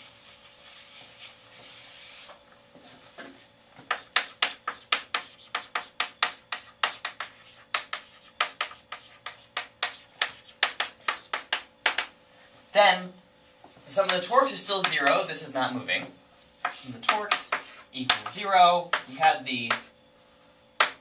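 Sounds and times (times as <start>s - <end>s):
chalkboard being erased: 0.0s - 12.8s, 16.4s - 21.0s
chalk tapping on board: 3.8s - 12.2s, 14.0s - 15.4s, 16.6s - 19.9s, 20.8s - 21.0s.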